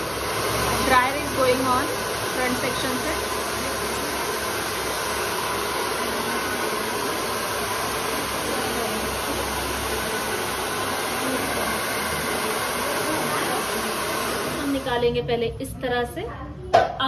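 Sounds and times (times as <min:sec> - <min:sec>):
hair dryers running: 0:00.0 - 0:15.2.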